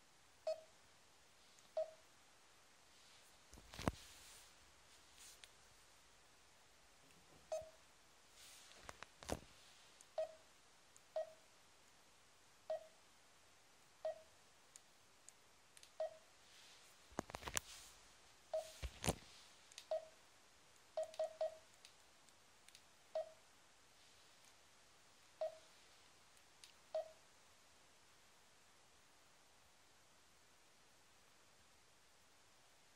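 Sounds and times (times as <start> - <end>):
touchscreen key beeps: 1.8 - 2.0, 27.0 - 27.2
device handling clicks and rubs: 3.5 - 5.6, 8.5 - 9.6, 17.1 - 18.0, 18.6 - 20.0.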